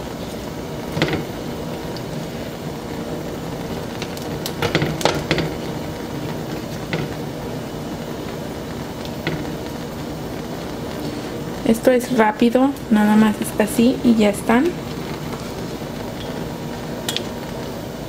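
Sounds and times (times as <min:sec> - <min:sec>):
steady hum: 0:00.0 - 0:18.0
metal tongs clicking on stove grate: 0:17.1 - 0:17.3.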